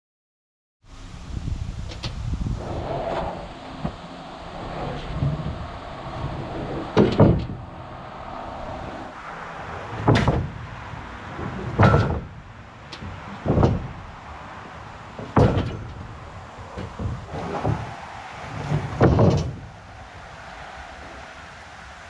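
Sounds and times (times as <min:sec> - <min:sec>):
wooden boards knocking: 0:07.0 - 0:07.6, 0:10.0 - 0:10.6, 0:11.4 - 0:12.4, 0:13.0 - 0:14.0, 0:15.2 - 0:16.1, 0:16.8 - 0:19.7.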